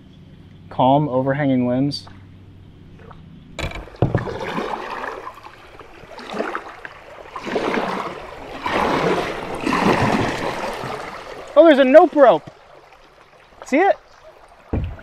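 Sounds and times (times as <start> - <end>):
paddle splashing through water: 2.9 - 15.0
sharp knocks: 3.6 - 4.5, 14.7 - 15.0.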